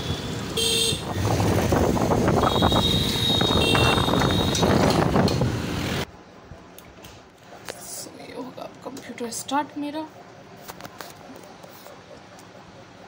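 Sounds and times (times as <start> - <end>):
scooter engine: 0.0 - 6.1
wind buffeting microphone: 1.0 - 5.8
horn beep: 2.4 - 4.7.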